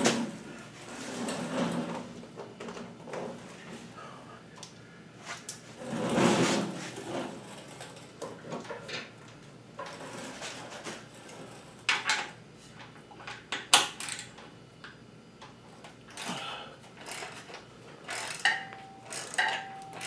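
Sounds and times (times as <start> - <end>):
sliding scrape: 5.2 - 7.5.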